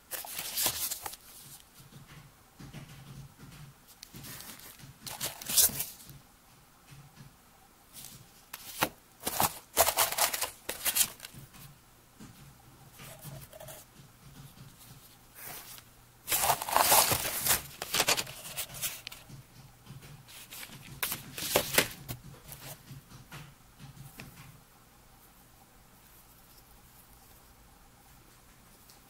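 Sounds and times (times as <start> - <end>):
paper rustling and crinkling: 0.0 - 1.9, 4.0 - 6.1, 8.0 - 11.7, 14.5 - 19.4, 20.3 - 22.8.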